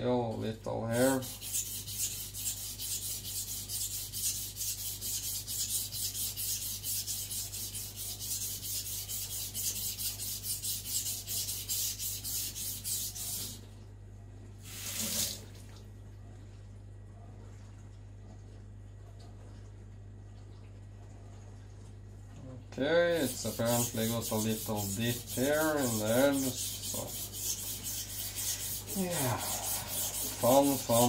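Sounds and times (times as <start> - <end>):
faint steady hum: 0.0 - 31.0
knife scraping on whetstone: 1.1 - 13.6, 23.2 - 31.0
short rubbing swish: 23.3 - 31.0.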